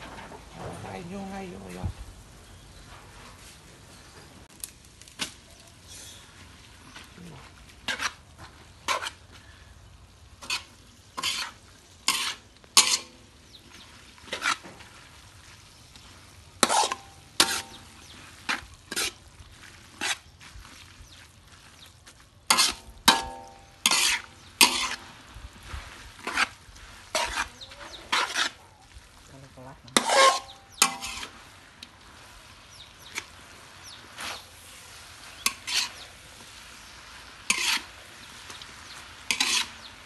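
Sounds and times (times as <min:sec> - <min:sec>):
metal spatula scraping a wok: 0:07.5 - 0:09.8, 0:10.4 - 0:20.3, 0:22.5 - 0:28.6, 0:29.9 - 0:40.0.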